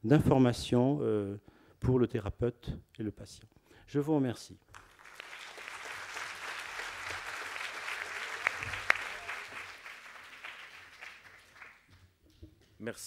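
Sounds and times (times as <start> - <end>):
audience applauding: 4.7 - 12.0.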